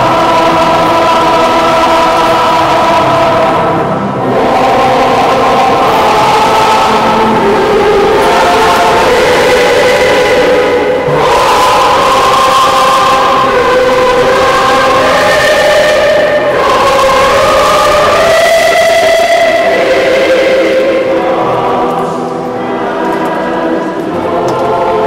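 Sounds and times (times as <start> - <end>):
choir singing held notes: 0.0 - 25.0.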